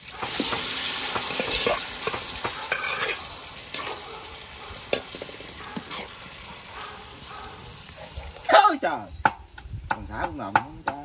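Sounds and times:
chicken sizzling in fat: 0:00.0 - 0:08.6
utensil scraping pan: 0:00.2 - 0:04.0, 0:04.8 - 0:06.3.

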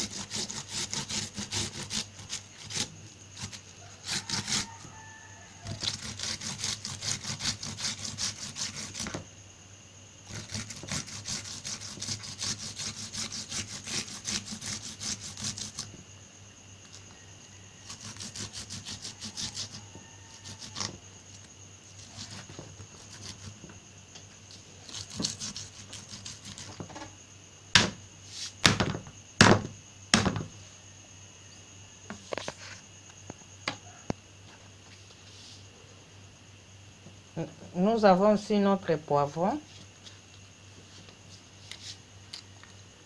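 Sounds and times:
onion grating on hand grater: 0:00.0 - 0:05.0, 0:05.6 - 0:09.2, 0:10.2 - 0:16.0, 0:17.8 - 0:21.0, 0:22.0 - 0:23.7, 0:24.8 - 0:27.0
loud sharp knocks: 0:27.7 - 0:28.0, 0:28.6 - 0:30.5.

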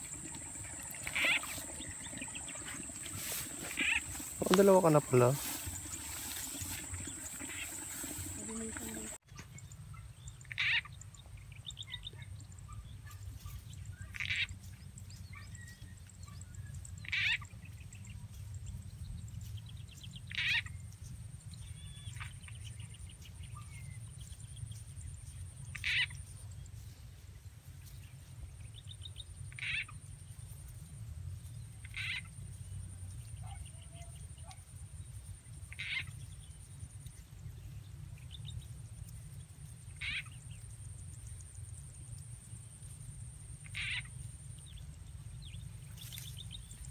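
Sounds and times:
croaking frog calls: 0:00.0 - 0:09.2, 0:10.4 - 0:11.0, 0:17.0 - 0:17.4, 0:25.7 - 0:26.2, 0:29.5 - 0:30.0, 0:31.8 - 0:32.3, 0:35.6 - 0:36.2, 0:39.9 - 0:40.6, 0:43.4 - 0:44.8.

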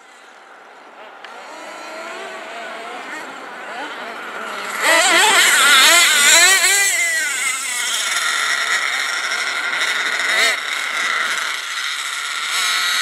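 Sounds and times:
nitro engine revving: 0:01.0 - 0:13.0.

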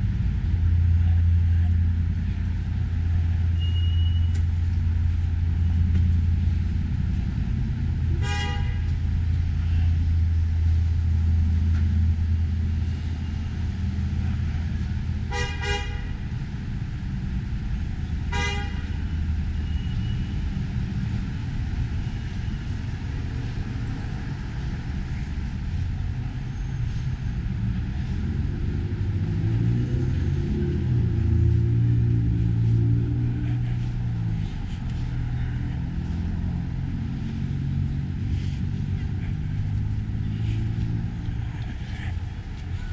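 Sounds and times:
street traffic rumble: 0:00.0 - 0:42.9
car horn toots: 0:08.2 - 0:08.9, 0:15.3 - 0:16.1, 0:18.3 - 0:19.0.

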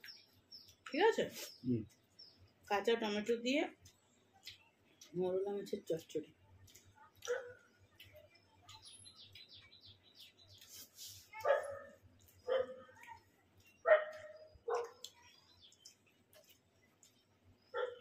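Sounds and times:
dog barking: 0:07.2 - 0:07.6, 0:11.4 - 0:13.2, 0:13.8 - 0:15.1, 0:17.8 - 0:18.0.

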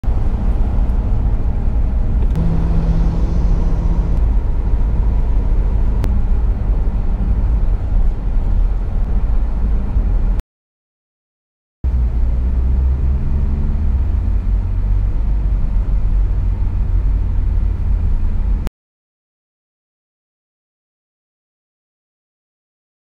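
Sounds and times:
car cabin road rumble: 0:00.0 - 0:10.4, 0:11.9 - 0:18.7.

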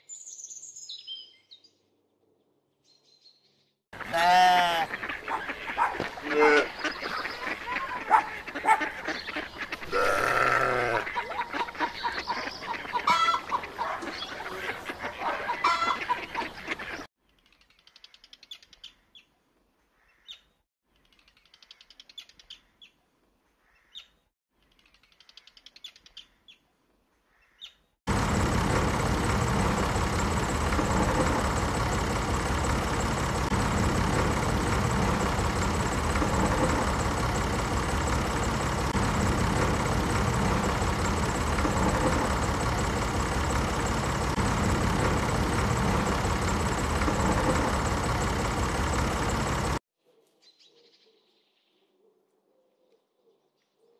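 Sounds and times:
birds and fowl calling: 0:04.0 - 0:17.1, 0:17.9 - 0:20.6, 0:23.5 - 0:24.3, 0:27.2 - 0:49.8
mechanical running noise: 0:28.1 - 0:49.8.

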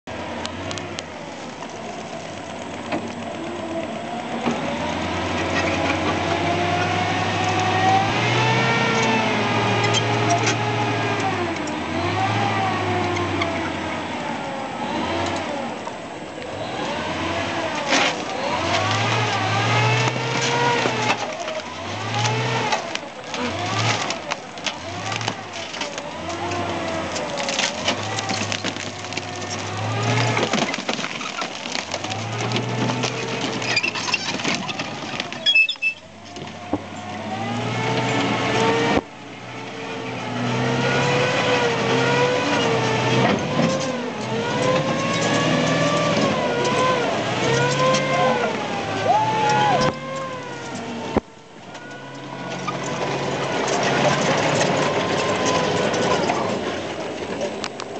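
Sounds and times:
vehicle engine revving: 0:00.0 - 0:57.9
sharp cracks and knocks: 0:17.8 - 0:35.4.

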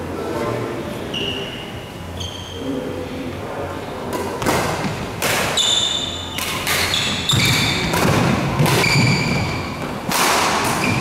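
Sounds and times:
shoes squeaking on court floor: 0:01.0 - 0:02.8, 0:04.8 - 0:10.0, 0:10.6 - 0:11.0
racket striking shuttlecock: 0:04.1 - 0:05.6, 0:06.3 - 0:11.0.

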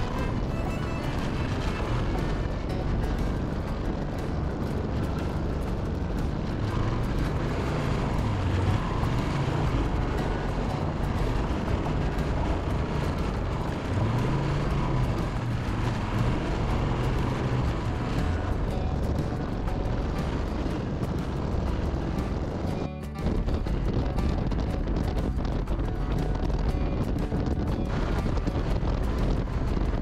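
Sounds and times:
motorcycle engine running: 0:00.0 - 0:30.0
wind rush: 0:00.0 - 0:30.0.

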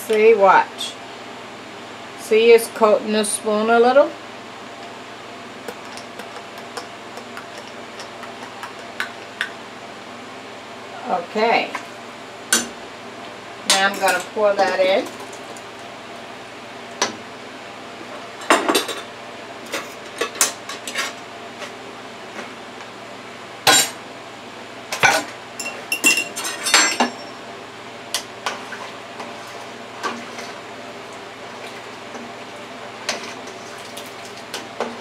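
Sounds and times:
utensils clinking against metal pot: 0:25.0 - 0:27.3.

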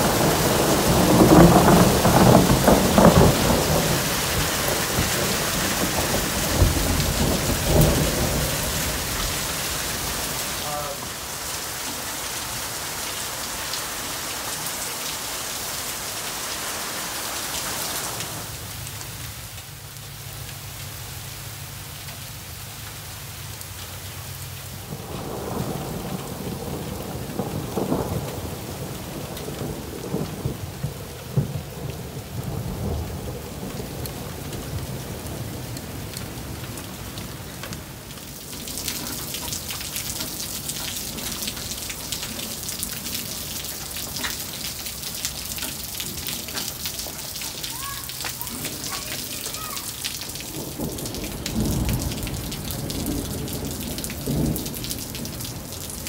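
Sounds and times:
thunder rumbling and cracking: 0:00.0 - 0:11.3, 0:24.8 - 0:56.0
heavy rain and hail: 0:00.0 - 0:56.0.

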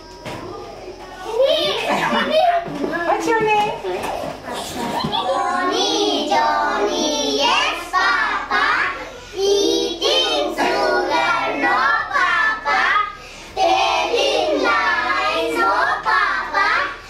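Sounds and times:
children singing together: 0:04.5 - 0:17.0.

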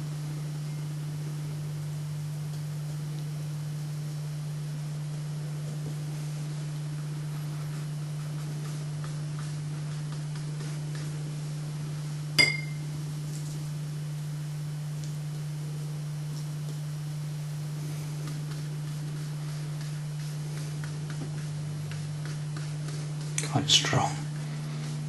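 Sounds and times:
steady low hum: 0:00.0 - 0:25.0
ringing metal clink: 0:12.4 - 0:12.8.

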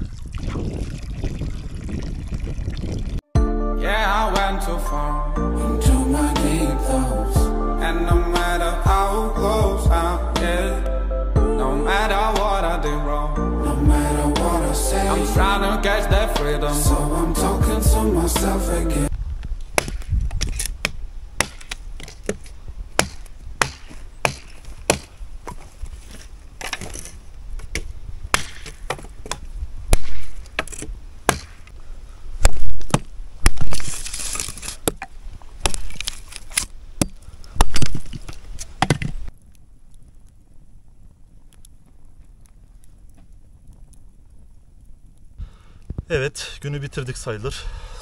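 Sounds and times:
firewood being chopped: 0:19.7 - 0:25.6, 0:26.6 - 0:31.8, 0:32.4 - 0:34.0, 0:34.8 - 0:39.2.

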